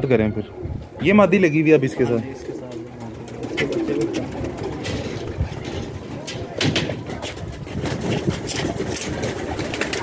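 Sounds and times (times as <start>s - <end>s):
pigeons cooing: 0.3s - 10.0s
clicks and rustles near microphone: 2.6s - 10.0s.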